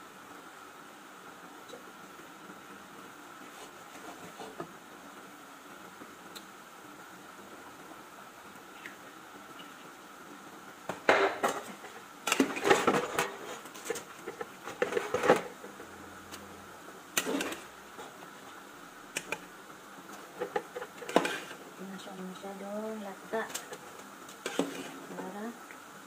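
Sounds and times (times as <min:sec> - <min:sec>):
wooden spatula scraping a pot: 0:03.5 - 0:04.7, 0:11.4 - 0:15.8, 0:17.2 - 0:18.3, 0:20.1 - 0:21.6, 0:23.4 - 0:25.4.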